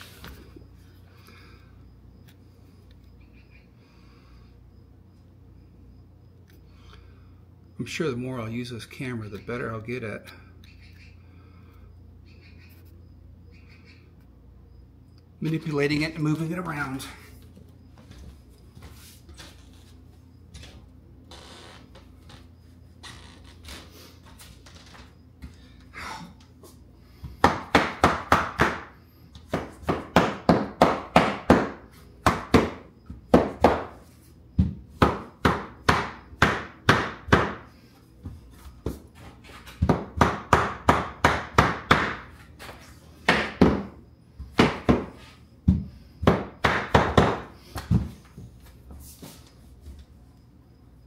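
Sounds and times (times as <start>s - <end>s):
mallet knocking floorboards: 29.5s - 34.0s, 39.7s - 42.3s, 43.3s - 48.2s.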